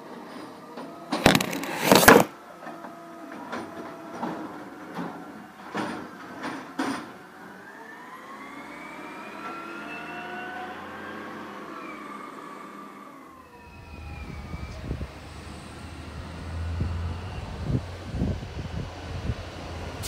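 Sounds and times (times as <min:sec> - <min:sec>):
distant siren wailing: 0:07.3 - 0:20.0
diesel truck engine rumble: 0:13.5 - 0:20.0.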